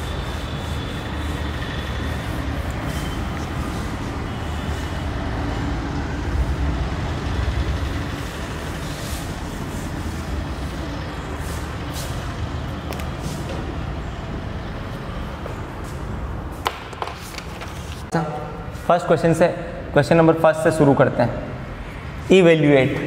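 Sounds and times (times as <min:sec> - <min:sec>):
duster wiping whiteboard: 0:00.0 - 0:05.8, 0:07.7 - 0:13.6.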